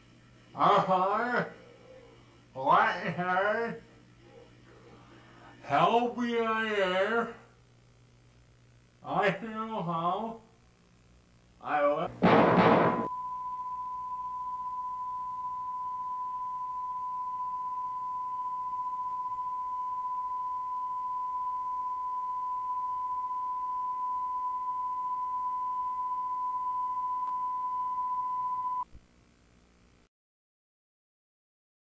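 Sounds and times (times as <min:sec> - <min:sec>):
pure test tone: 0:13.1 - 0:28.9.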